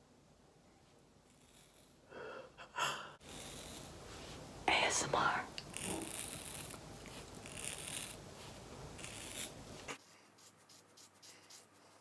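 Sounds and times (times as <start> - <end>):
scissors cutting hair: 9.0 - 11.7.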